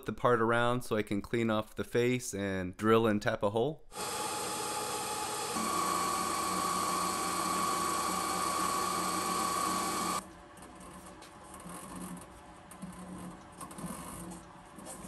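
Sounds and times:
drill boring into metal: 0:03.9 - 0:10.2
lathe whining: 0:03.9 - 0:10.2.

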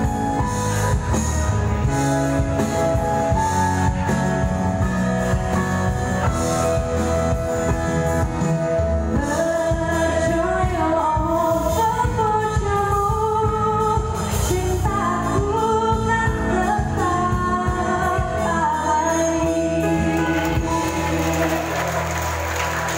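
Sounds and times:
live band playing: 0:00.0 - 0:22.9
woman singing into microphone: 0:09.1 - 0:21.8.

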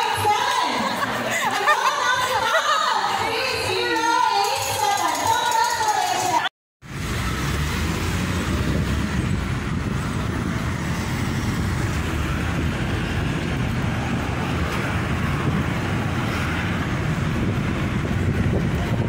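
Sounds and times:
vehicle engine and tyre rumble: 0:06.8 - 0:19.0.

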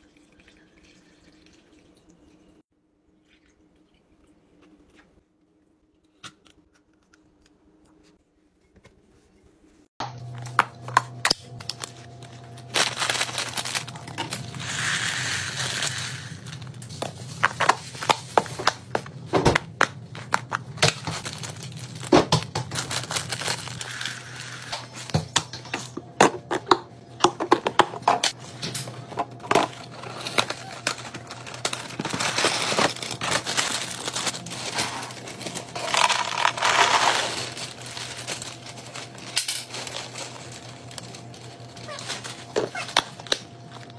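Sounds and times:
plastic bag crinkling: 0:11.5 - 0:19.3, 0:20.0 - 0:25.1, 0:29.3 - 0:43.9
dry cereal pouring: 0:12.6 - 0:17.4, 0:22.8 - 0:24.7, 0:30.6 - 0:41.6.

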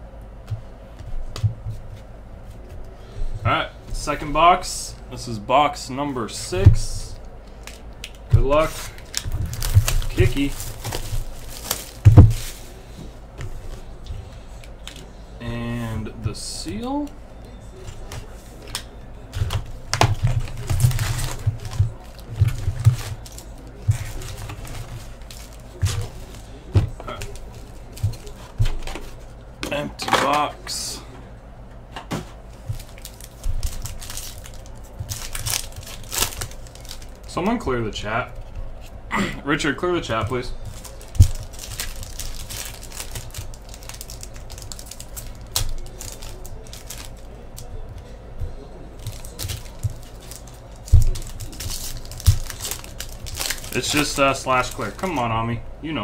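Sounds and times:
plastic shrink-wrap crackling: 0:07.5 - 0:12.8, 0:20.1 - 0:26.6, 0:32.7 - 0:37.3, 0:40.6 - 0:47.8, 0:49.0 - 0:55.2.

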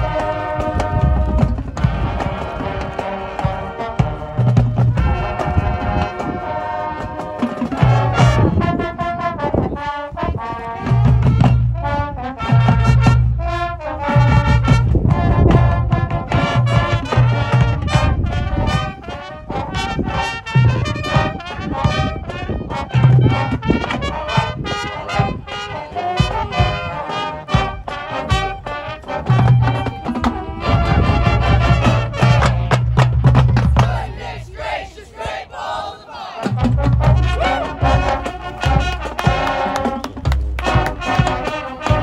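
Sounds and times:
brass band chords: 0:00.0 - 0:42.0
bass drum and drumline hits: 0:10.9 - 0:19.1, 0:27.5 - 0:34.4, 0:36.5 - 0:42.0.

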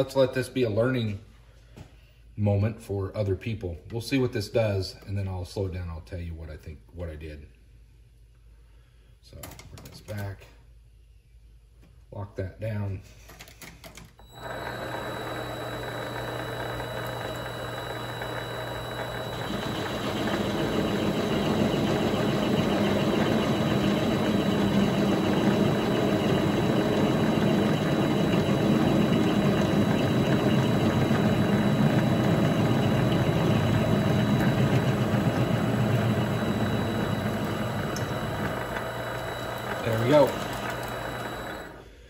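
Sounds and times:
lathe running: 0:14.2 - 0:41.8.

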